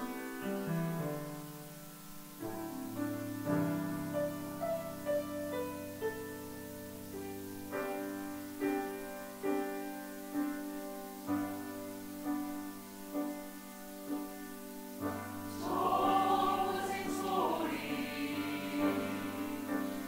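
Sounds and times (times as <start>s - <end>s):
piano playing slow chords: 0.0s - 20.0s.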